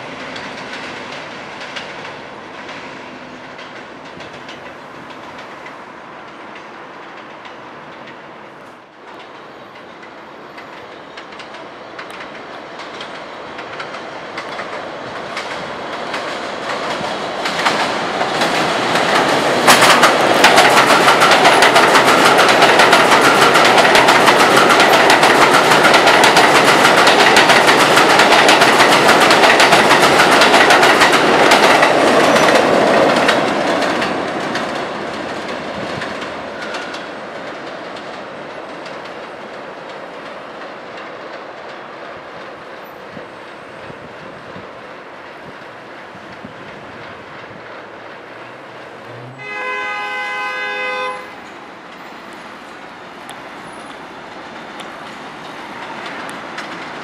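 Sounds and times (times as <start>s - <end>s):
subway train passing: 0.0s - 57.0s
wheels clattering over rail joints: 9.0s - 43.7s.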